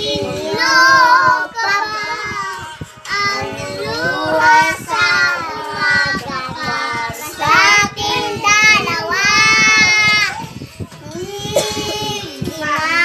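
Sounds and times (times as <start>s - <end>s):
child singing: 0.0s - 13.0s.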